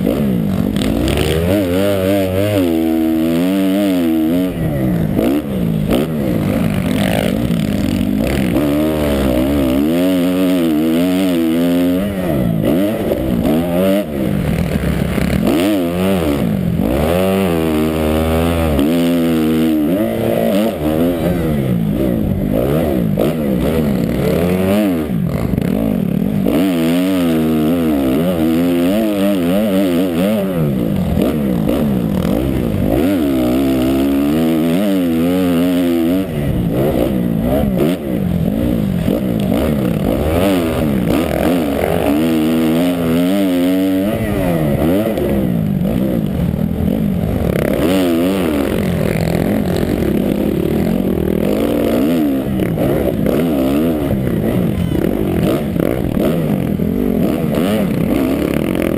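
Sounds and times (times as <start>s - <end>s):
dirt bike engine revving: 0.0s - 58.9s.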